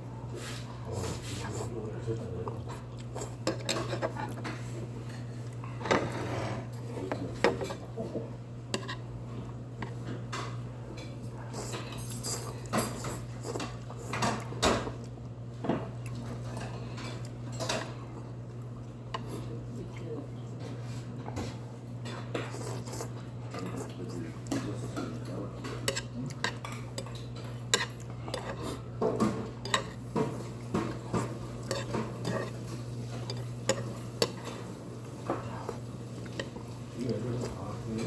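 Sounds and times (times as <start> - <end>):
steady low hum: 0.0 - 38.0
chopsticks scraping metal bowls: 22.1 - 38.0.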